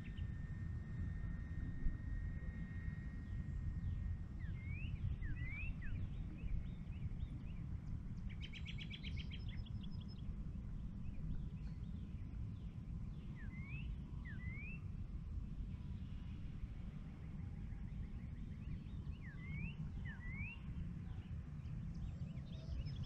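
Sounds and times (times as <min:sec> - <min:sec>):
birds whistling: 0:19.2 - 0:20.7.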